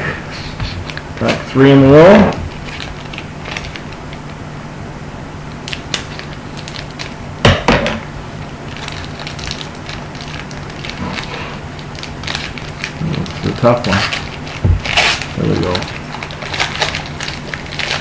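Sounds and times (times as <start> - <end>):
foil wrapper crinkling: 0.8 - 4.4, 5.6 - 7.2, 8.6 - 18.0
loud knock on table: 7.4 - 8.0
scissors snipping foil pack: 11.9 - 18.0.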